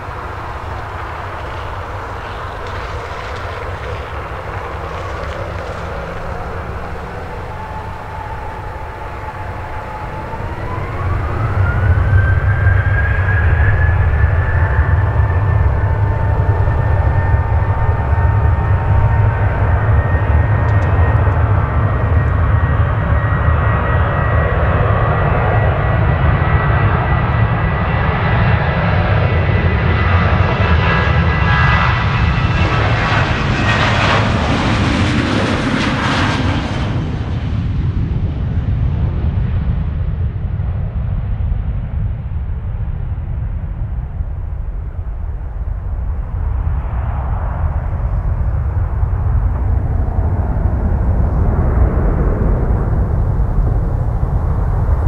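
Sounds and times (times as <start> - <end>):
jet engines roaring and whining: 0.0 - 55.0.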